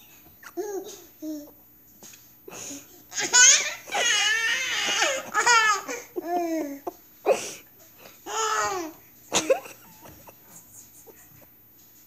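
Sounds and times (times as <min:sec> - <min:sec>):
toddlers laughing and babbling: 0:00.4 - 0:01.6, 0:02.8 - 0:07.0.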